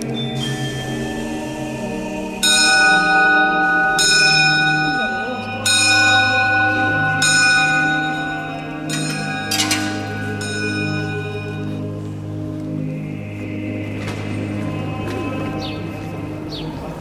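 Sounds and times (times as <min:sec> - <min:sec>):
background music with low notes: 0:00.0 - 0:17.0
bell strikes ringing: 0:02.4 - 0:11.8.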